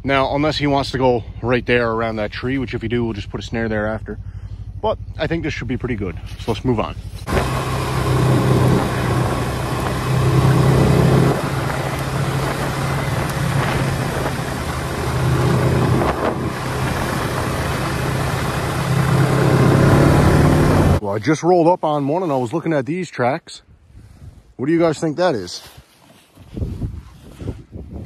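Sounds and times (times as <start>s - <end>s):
snowmobile engine running: 0.0s - 21.0s.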